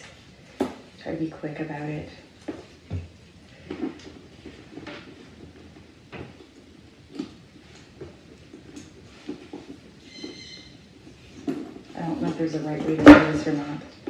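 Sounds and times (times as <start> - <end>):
soft rustling: 0.0 - 14.0
short ringing tone: 10.1 - 10.7.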